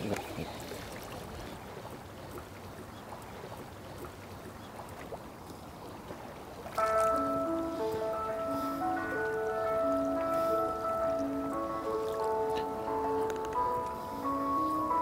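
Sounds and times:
water lapping: 0:00.0 - 0:15.0
faint ticks: 0:01.4 - 0:05.9, 0:06.8 - 0:15.0
bell-like mallet music: 0:06.8 - 0:15.0.

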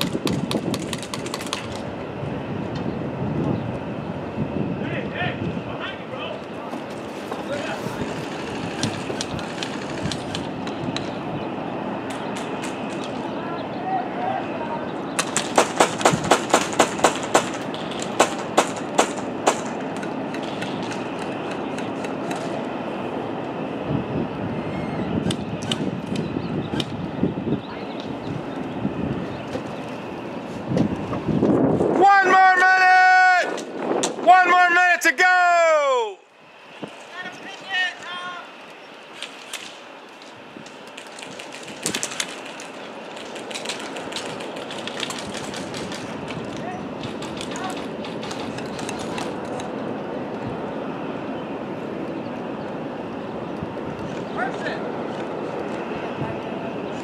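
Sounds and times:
steady background rush: 0:00.0 - 0:57.0
airsoft gun shots: 0:15.2 - 0:19.8.

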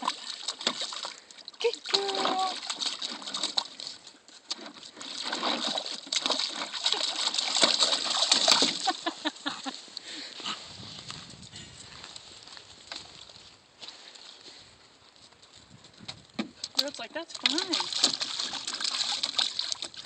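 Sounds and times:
puppies splashing in water: 0:00.0 - 0:10.1, 0:16.6 - 0:20.0.

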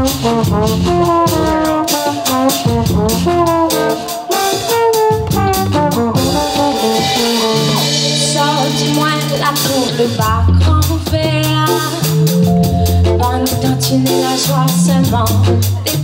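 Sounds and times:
brass horns playing melody: 0:00.0 - 0:10.4
drums: 0:00.0 - 0:16.0.

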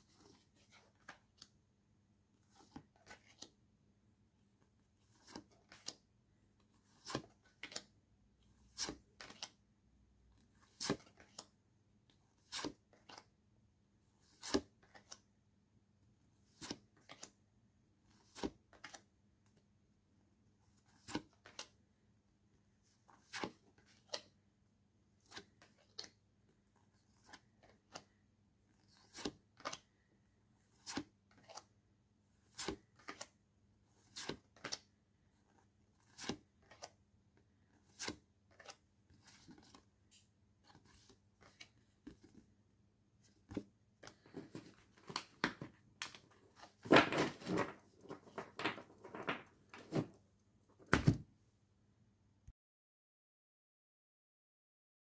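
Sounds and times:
postcards flipping with papery snaps: 0:02.5 - 0:03.6, 0:05.1 - 0:06.0, 0:06.8 - 0:08.0, 0:08.6 - 0:09.6, 0:10.6 - 0:11.5, 0:16.5 - 0:17.4, 0:18.2 - 0:19.6, 0:28.8 - 0:30.0, 0:30.8 - 0:31.7, 0:32.5 - 0:33.4, 0:34.0 - 0:34.9, 0:35.5 - 0:37.0, 0:37.6 - 0:42.4
paper stack rustling and knocking: 0:43.5 - 0:50.2, 0:50.8 - 0:51.3.

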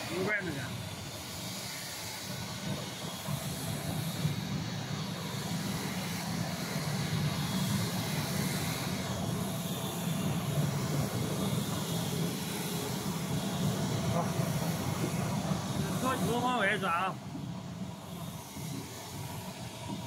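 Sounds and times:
mixing mill machine hum with hiss: 0:00.0 - 0:20.0.

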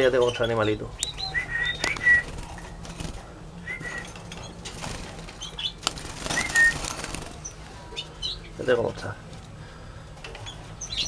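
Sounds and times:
canaries whistled call notes: 0:00.2 - 0:02.4, 0:03.6 - 0:04.2, 0:05.4 - 0:06.9.

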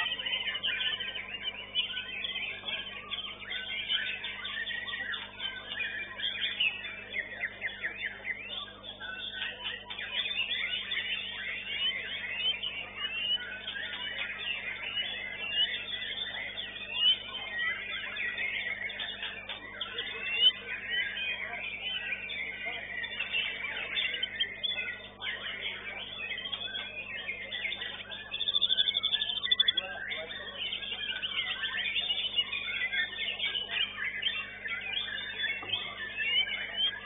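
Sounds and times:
birds singing whistled trills: 0:00.0 - 0:37.0.

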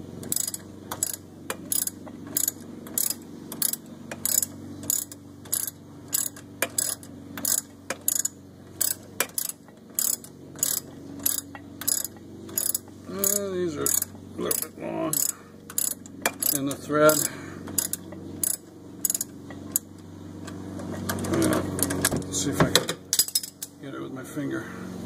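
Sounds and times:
hand ratchet clicking: 0:00.2 - 0:19.9.

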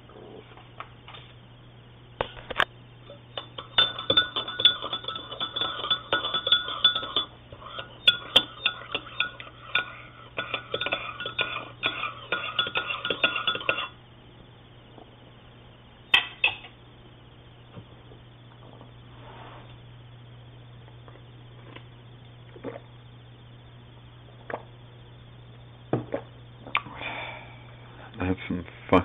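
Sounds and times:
teaspoon clinking in ceramic mug: 0:03.4 - 0:14.0.

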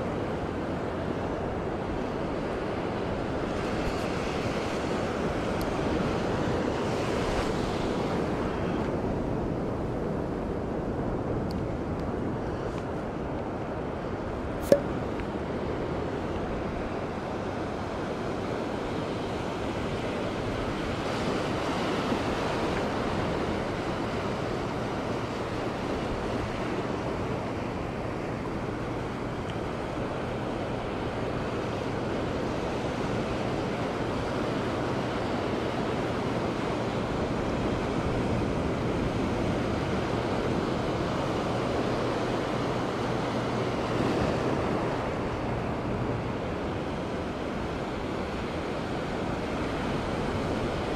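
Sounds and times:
ocean surf on sandy beach: 0:00.0 - 0:50.9
sharp click: 0:14.6 - 0:14.9.

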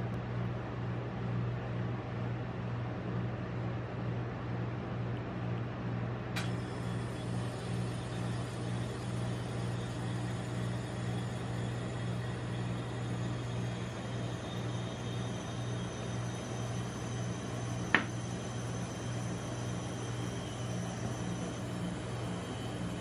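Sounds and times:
refrigeration compressor humming: 0:06.0 - 0:23.0.

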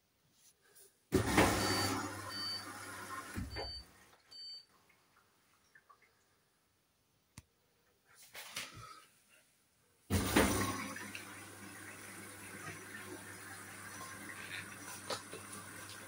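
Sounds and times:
washing machine beeps: 0:01.2 - 0:04.7.

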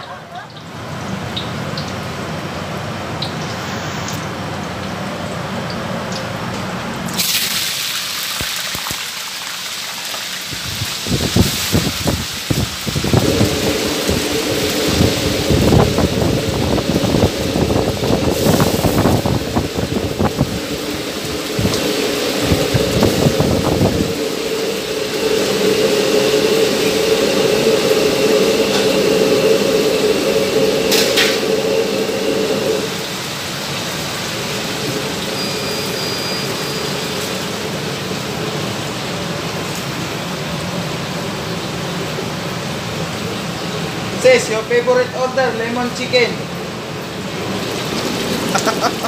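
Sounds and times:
fish frying in hot oil: 0:00.5 - 0:13.2, 0:32.8 - 0:40.3
steady drone: 0:12.8 - 0:39.2.

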